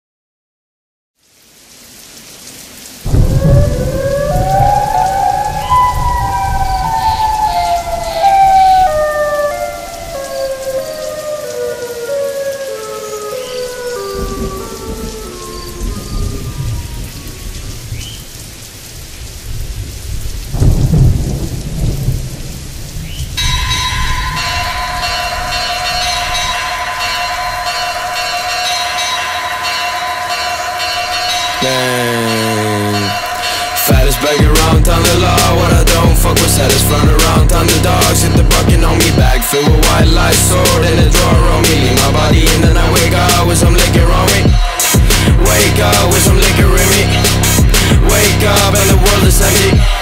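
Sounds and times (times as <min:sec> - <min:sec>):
steady rain: 0:01.2 - 0:50.0
rolls of thunder: 0:03.0 - 0:11.2, 0:13.9 - 0:18.3, 0:19.3 - 0:31.6
music: 0:03.1 - 0:17.2, 0:23.4 - 0:50.0
tones stepping downward in pitch: 0:03.1 - 0:17.5.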